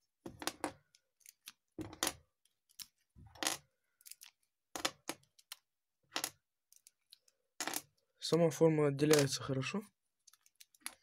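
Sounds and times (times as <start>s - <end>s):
plastic bricks clicking and clacking: 0.3s - 8.0s, 9.1s - 9.4s, 10.3s - 11.0s.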